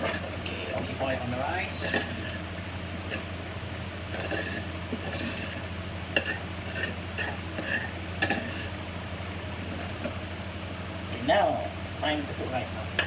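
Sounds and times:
metal spoon stirring rice in saucepan: 0.0 - 3.3, 4.1 - 8.8
spoon clinking and scraping pot: 6.2 - 8.7.

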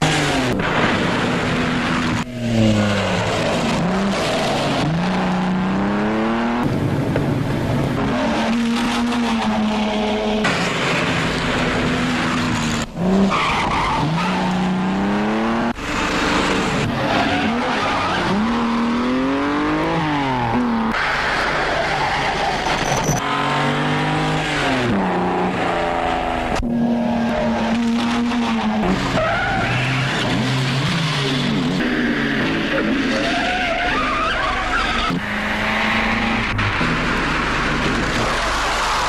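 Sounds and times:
car engines revving: 0.0 - 39.0
tyre squeal: 21.7 - 23.2, 32.4 - 36.5.

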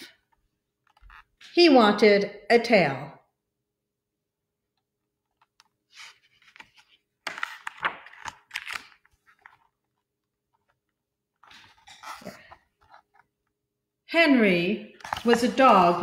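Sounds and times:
book pages turning: 5.2 - 13.4, 15.0 - 16.0.

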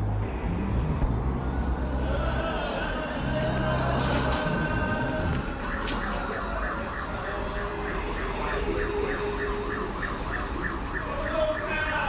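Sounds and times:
city traffic rumble: 0.0 - 12.0
siren yelping: 4.6 - 12.0.

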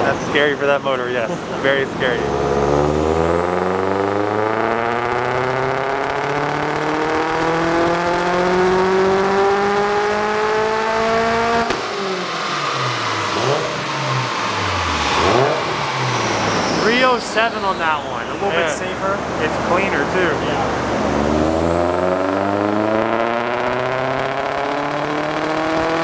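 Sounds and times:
car engine revving: 0.0 - 26.0.

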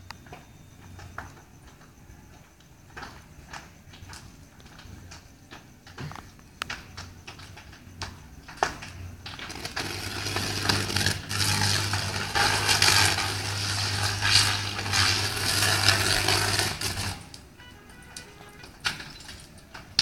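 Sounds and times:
electrical crackles and pops: 0.0 - 20.0
low mains hum: 0.0 - 20.0
electrical arcing buzz: 9.2 - 20.0.

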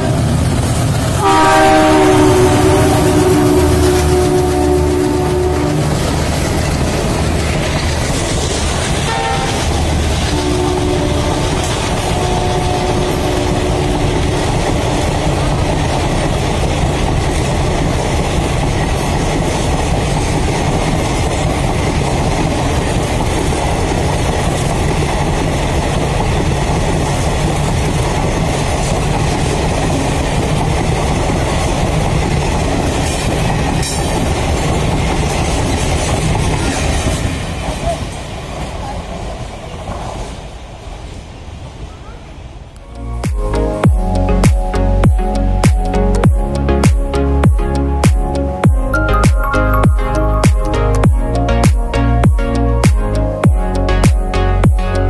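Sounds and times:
train wheels clattering on rails: 0.0 - 40.8
train horn: 1.2 - 7.0, 9.0 - 16.5.

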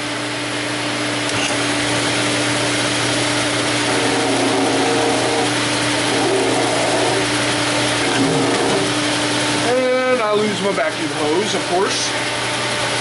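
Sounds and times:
vacuum running: 0.0 - 13.0
drill press humming: 1.2 - 13.0
acrylic grinding on sander: 1.3 - 9.2.

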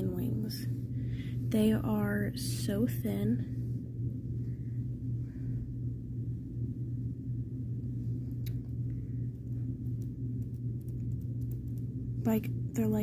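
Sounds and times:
steady low hum: 0.0 - 13.0
faint clicks: 8.3 - 11.9.

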